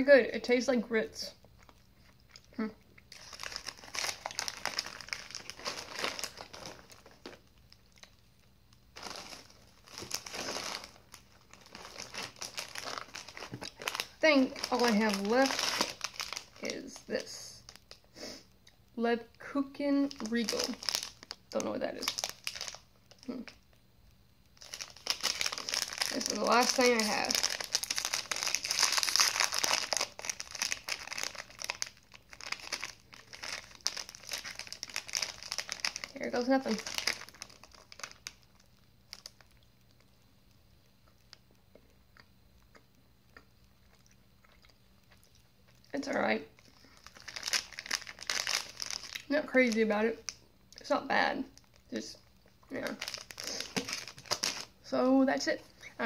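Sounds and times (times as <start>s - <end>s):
plastic wrapper crinkling: 1.5s - 18.1s, 20.0s - 23.8s, 24.4s - 40.2s, 45.0s - 50.9s, 51.5s - 54.9s.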